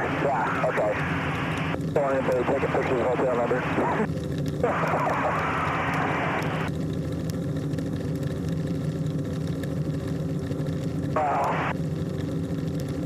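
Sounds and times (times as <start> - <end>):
radio-like hiss: 0.0 - 6.7, 11.1 - 11.8
small aircraft engine drone: 0.0 - 13.0.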